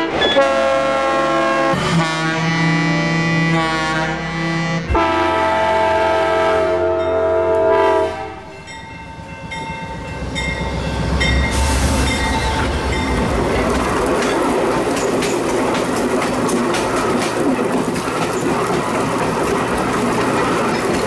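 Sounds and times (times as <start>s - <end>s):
locomotive air horns: 0.0s - 8.5s
passenger train passing: 0.0s - 21.0s
crossing bell ringing: 6.9s - 18.5s.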